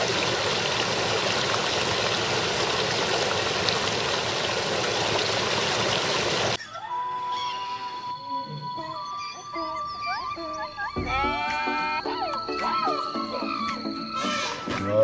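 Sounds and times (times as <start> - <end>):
brook babbling over rocks: 0.0 - 6.6.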